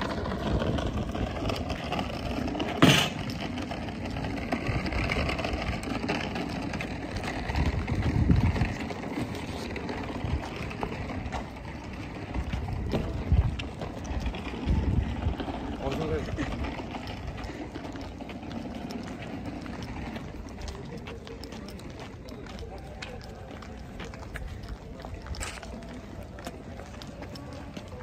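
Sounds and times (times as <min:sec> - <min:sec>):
low rumbling: 0:00.0 - 0:21.5.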